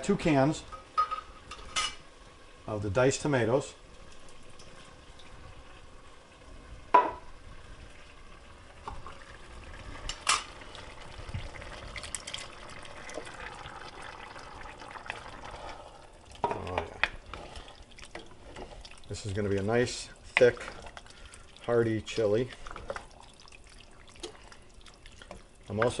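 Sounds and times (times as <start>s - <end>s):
can knocking against pot: 6.9s - 7.2s
wooden spoon stirring: 15.1s - 26.0s.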